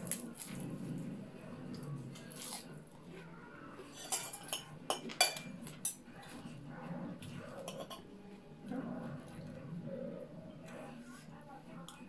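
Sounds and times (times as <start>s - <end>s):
cutlery clinking on plate: 3.9s - 6.0s, 7.6s - 8.1s.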